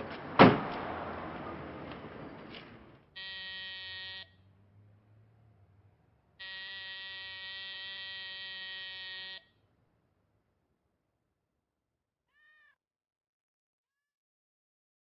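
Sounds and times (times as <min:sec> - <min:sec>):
electric buzzer buzzing: 0:03.2 - 0:04.4, 0:06.4 - 0:09.6.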